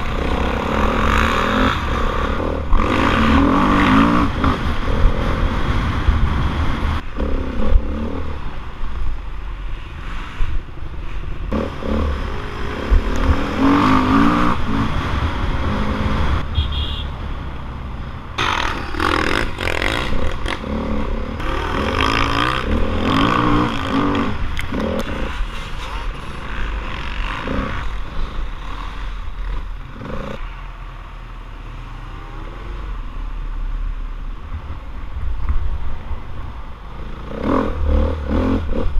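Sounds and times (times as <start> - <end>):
dirt bike engine revving: 0.0 - 8.5, 11.5 - 17.0, 18.4 - 25.4, 26.2 - 30.4.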